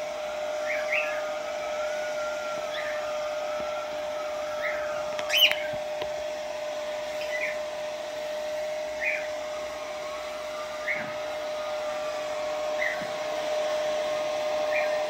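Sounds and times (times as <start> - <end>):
hair dryer blowing: 0.0 - 15.0
cockatiel chirping: 0.6 - 1.3, 2.7 - 3.1, 4.6 - 5.8, 7.2 - 7.6, 9.0 - 9.4, 10.8 - 11.2, 12.8 - 13.1, 14.7 - 15.0.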